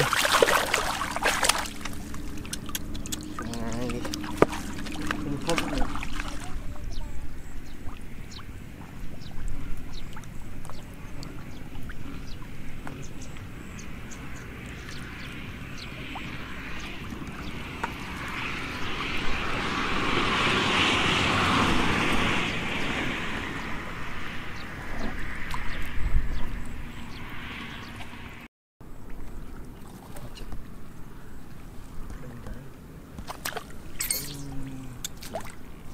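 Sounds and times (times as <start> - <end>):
fish splashing in a puddle: 0.0 - 6.6.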